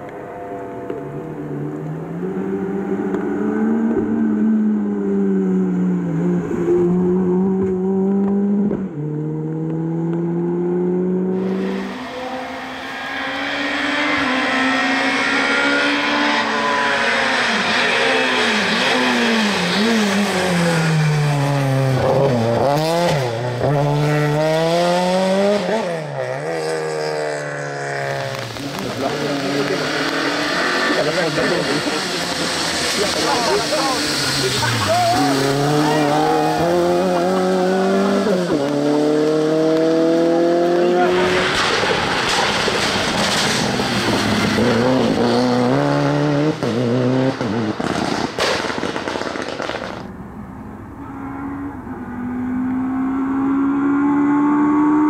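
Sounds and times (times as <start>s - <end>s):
rally car engine revving: 0.0s - 50.1s, 50.8s - 55.0s
tyres hissing on wet road: 29.2s - 36.5s.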